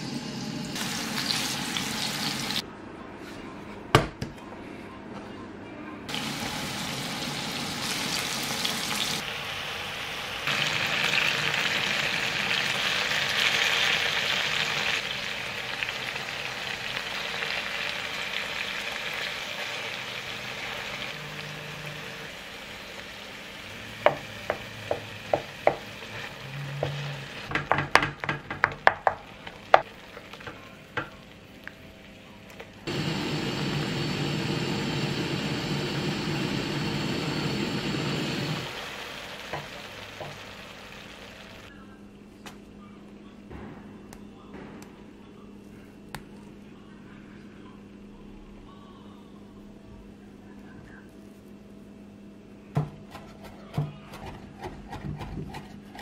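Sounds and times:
hot oil sizzling in a pan: 0.0 - 2.6, 6.1 - 27.7, 32.9 - 41.7.

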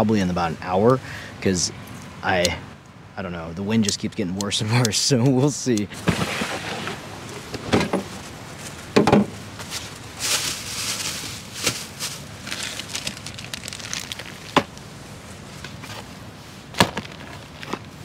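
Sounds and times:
camp gear knocking and rustling: 5.3 - 13.2, 16.7 - 18.0.

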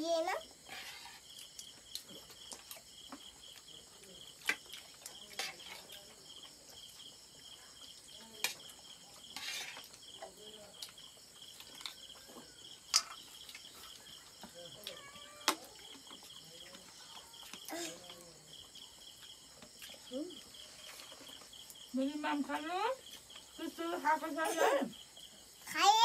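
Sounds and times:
crickets chirping: 0.0 - 26.0.

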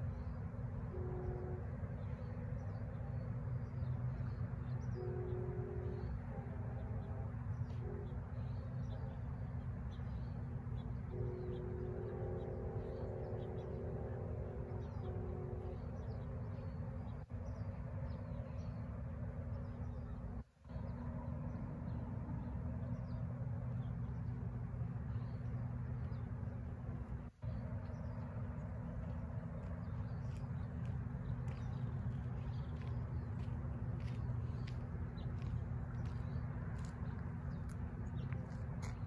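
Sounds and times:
low outdoor rumble: 0.0 - 39.0.

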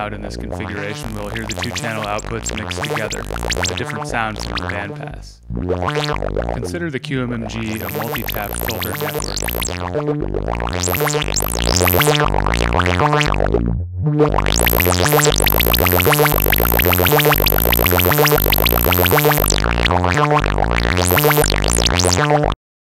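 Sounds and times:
pulsing synth sequence: 0.6 - 4.8, 5.5 - 6.8, 7.5 - 13.6, 14.3 - 22.6
resonant filter sweeps: 7.5 - 13.6.

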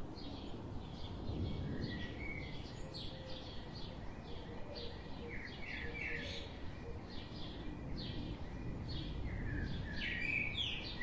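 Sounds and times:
small songbirds chirping: 0.0 - 11.0
steady low background hiss: 0.0 - 11.0.

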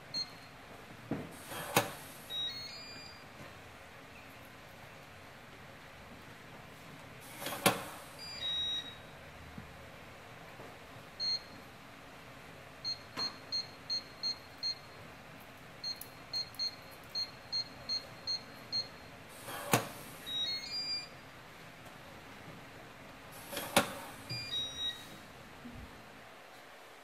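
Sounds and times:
short keypad beeps: 2.3 - 3.2, 8.2 - 9.0, 15.8 - 19.0, 20.2 - 21.1, 23.8 - 25.1
electronic lock chime: 2.3 - 3.3, 8.2 - 9.0, 20.2 - 21.1, 24.4 - 25.1.

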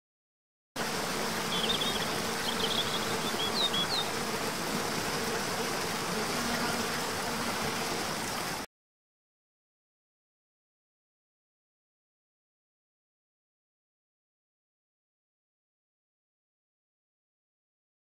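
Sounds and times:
small birds chirping: 1.4 - 4.2
waterfall rushing over rocks: 5.7 - 8.7.

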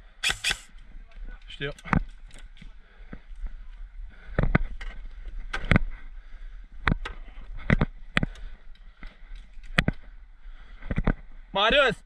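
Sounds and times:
airsoft gunfire cracks: 0.2 - 0.7.

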